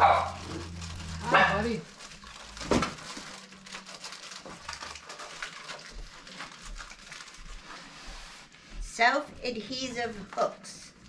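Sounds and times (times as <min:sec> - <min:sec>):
package rustling and crinkling: 0:00.0 - 0:08.6.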